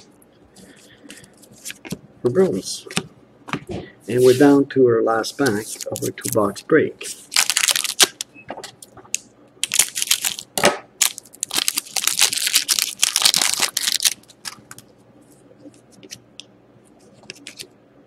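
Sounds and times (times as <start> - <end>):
foil wrapper crinkling and tearing: 7.3 - 8.2, 9.6 - 14.8
cards being handled: 17.0 - 17.7.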